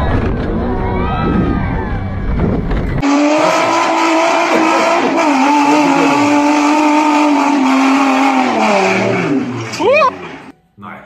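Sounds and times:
car engine revving high: 0:03.0 - 0:10.5.

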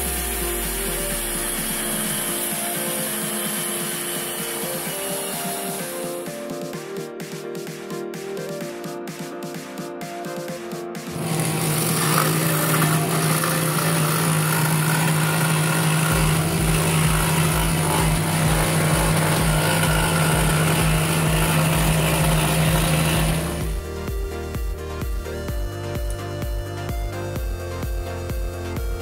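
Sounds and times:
scroll saw cutting wood: 0:00.0 - 0:06.7, 0:11.1 - 0:23.8.

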